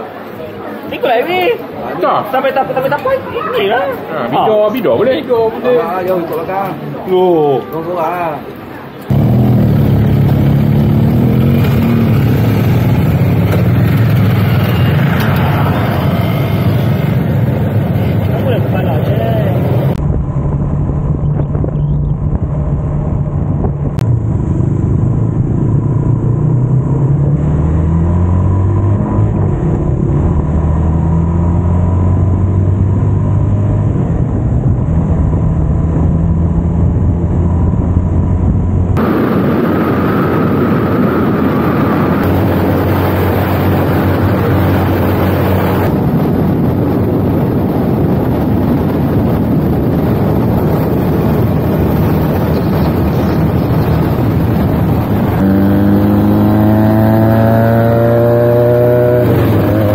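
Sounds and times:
motorcycle engine running: 0:09.1 - 0:27.4, 0:31.7 - 0:59.9
wind rush on microphone: 0:09.1 - 0:59.9.

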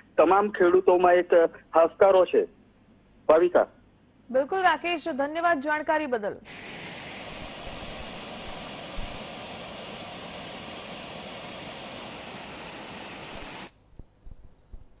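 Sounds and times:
steady rushing hiss: 0:06.5 - 0:14.2.

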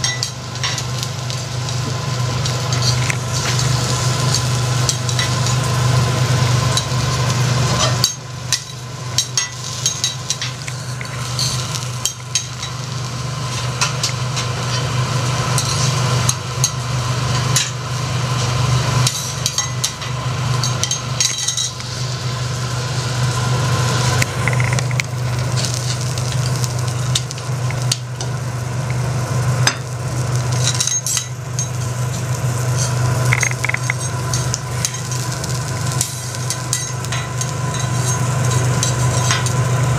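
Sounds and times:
prawns sizzling on a griddle: 0:00.0 - 0:39.9
steady low hum: 0:00.0 - 0:39.9
metal spatulas scraping a griddle: 0:09.7 - 0:11.8, 0:15.6 - 0:16.0, 0:32.1 - 0:33.0.

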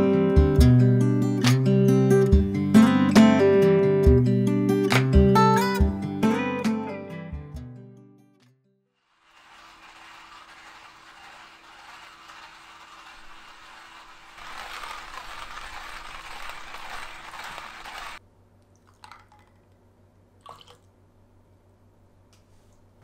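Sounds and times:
hand coffee grinder grinding: 0:09.0 - 0:18.2.

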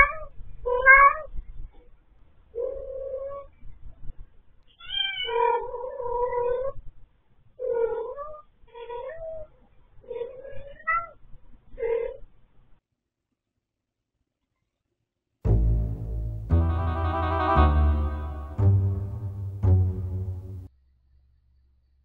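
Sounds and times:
cat meowing: 0:04.8 - 0:06.6.

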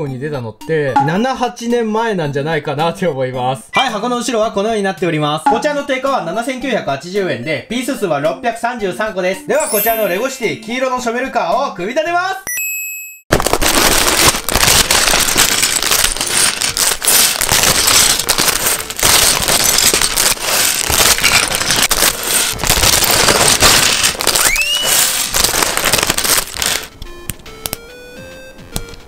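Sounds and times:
light music: 0:00.0 - 0:12.4, 0:16.0 - 0:29.0
plastic bags crinkling: 0:13.3 - 0:26.9.

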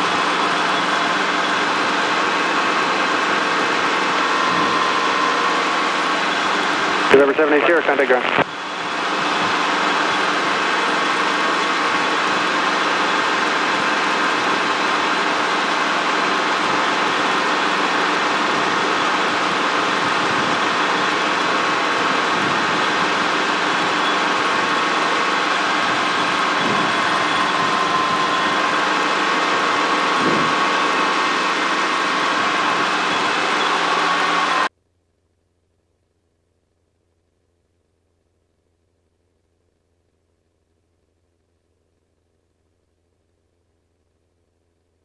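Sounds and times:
helicopter engine and rotor drone: 0:00.0 - 0:34.7.

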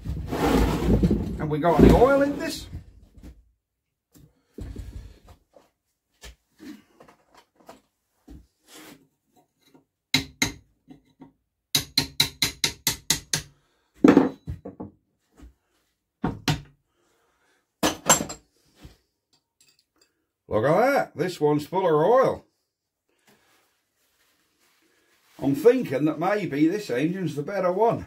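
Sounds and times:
metal tools knocking on wood: 0:14.0 - 0:15.0, 0:17.8 - 0:18.4.

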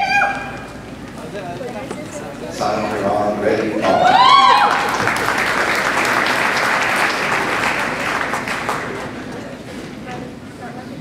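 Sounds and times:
whooping cheer: 0:03.8 - 0:05.4
audience applauding: 0:03.9 - 0:09.6.

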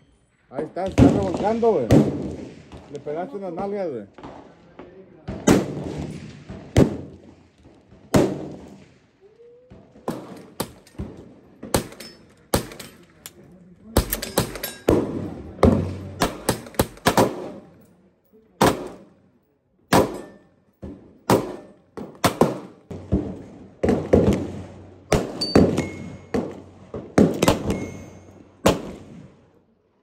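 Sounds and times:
pistol gunshots: 0:00.9 - 0:02.8, 0:05.3 - 0:07.2, 0:08.1 - 0:08.9, 0:10.1 - 0:13.0, 0:14.0 - 0:17.8, 0:18.6 - 0:19.1, 0:19.9 - 0:20.4, 0:21.2 - 0:29.3.

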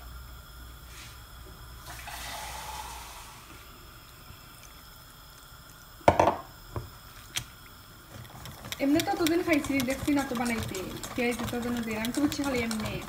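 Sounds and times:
water pouring into steel bowl: 0:01.8 - 0:03.7
whisk clanking against steel bowl: 0:08.3 - 0:13.0.

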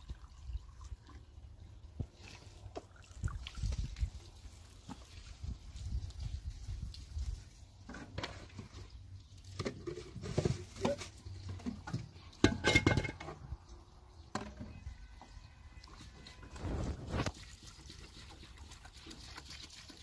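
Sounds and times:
plastic colander and bowl clattering: 0:09.5 - 0:13.4.

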